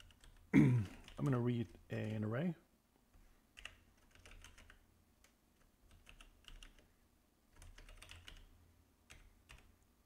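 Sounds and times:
typing on computer keyboard: 0:00.0 - 0:02.2, 0:03.5 - 0:06.9, 0:07.5 - 0:09.8.

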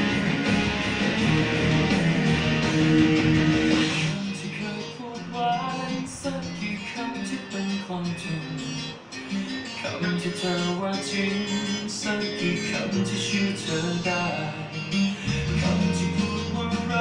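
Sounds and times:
deep bass note: 0:00.0 - 0:04.0
picked guitar: 0:00.0 - 0:17.0.

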